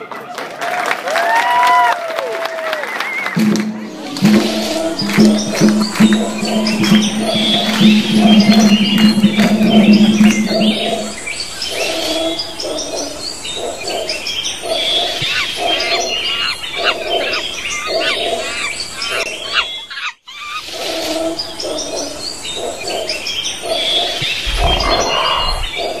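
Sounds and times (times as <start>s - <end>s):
low repeating animal call: 3.4s - 12.4s, 24.3s - 26.0s
birds chirping and whistling: 3.9s - 20.6s, 21.4s - 26.0s
low rumble: 24.4s - 25.8s.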